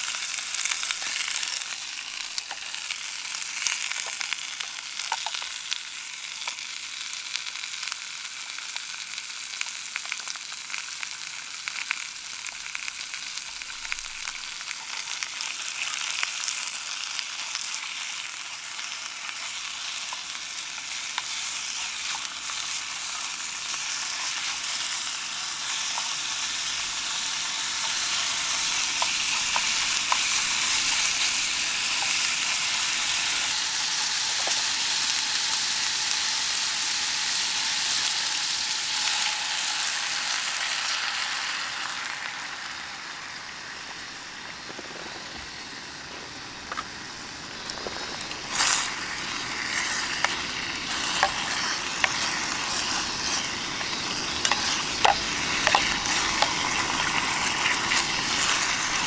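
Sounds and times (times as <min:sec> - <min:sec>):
pork sizzling in a tin: 0:00.0 - 0:59.0.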